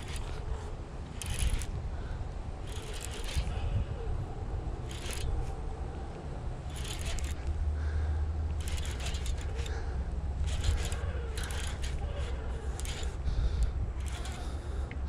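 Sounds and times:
fishing reel ticking and scraping: 0:00.0 - 0:01.8, 0:02.6 - 0:03.6, 0:04.9 - 0:05.5, 0:06.6 - 0:07.5, 0:08.5 - 0:15.0.

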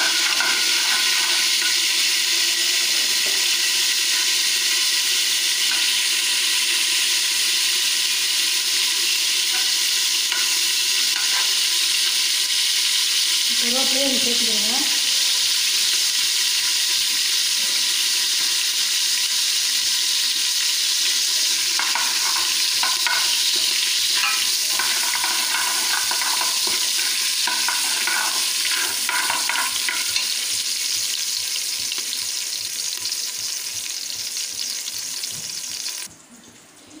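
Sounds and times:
seeds sizzling in hot oil: 0:00.0 - 0:36.1
metal ladle scraping a pot: 0:21.8 - 0:30.4.

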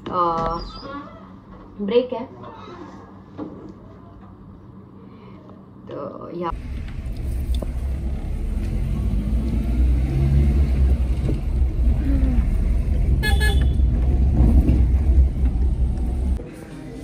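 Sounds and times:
car engine and road rumble: 0:06.5 - 0:16.4
car horn toot: 0:13.2 - 0:13.9.

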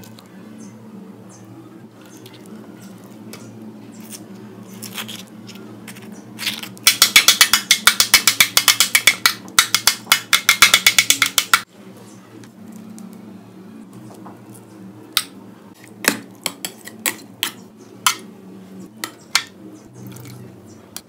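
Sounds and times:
spoon scraping avocado: 0:02.1 - 0:06.8.

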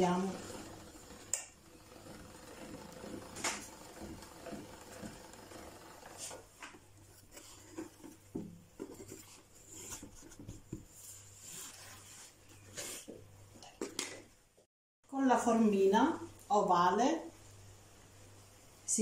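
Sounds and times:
dough rubbing: 0:00.0 - 0:13.1.

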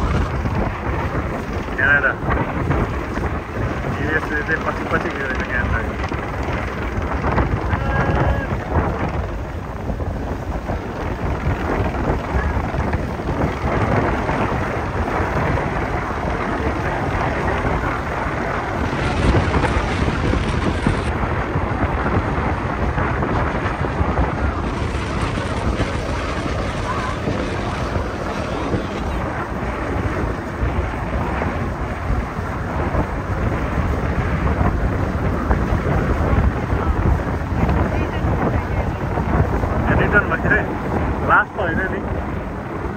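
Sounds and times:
choppy water: 0:00.0 - 0:42.9
wind buffeting microphone: 0:00.0 - 0:42.9.

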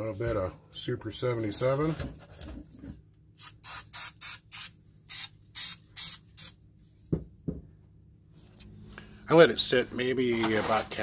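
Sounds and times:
aerosol spray hissing: 0:03.4 - 0:06.6
soft knocks: 0:07.1 - 0:07.7.

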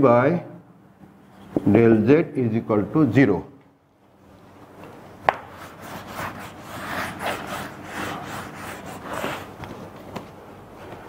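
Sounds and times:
marker tapping whiteboard: 0:05.2 - 0:05.5.

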